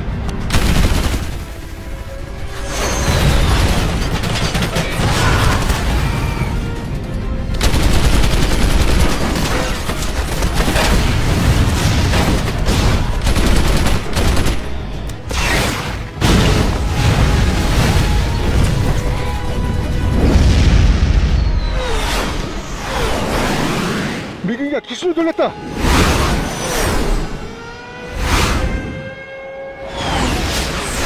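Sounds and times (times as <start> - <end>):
loud dramatic music: 0.4 - 27.5
rapid gunfire: 0.5 - 1.8, 3.2 - 6.2, 7.5 - 14.8.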